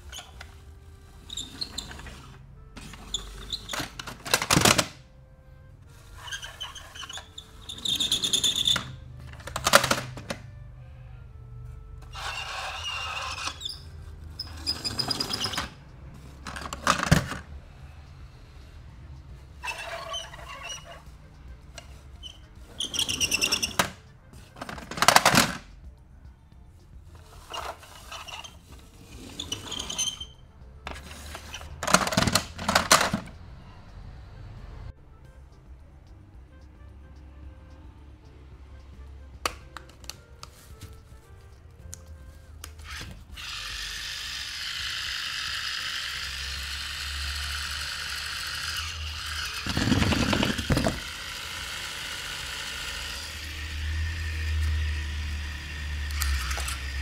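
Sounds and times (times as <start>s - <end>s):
toy wheels rolling on plastic: 0.0s - 5.0s, 6.0s - 10.4s, 12.1s - 17.5s, 19.6s - 21.0s, 21.8s - 25.7s, 27.2s - 30.3s, 30.9s - 33.3s, 42.8s - 57.0s
plastic toys clacking: 1.6s - 5.0s, 6.4s - 10.4s, 16.4s - 17.5s, 22.8s - 25.7s, 30.9s - 33.3s, 48.1s - 51.3s, 56.1s - 57.0s
toys rattling in a box: 48.7s - 51.2s.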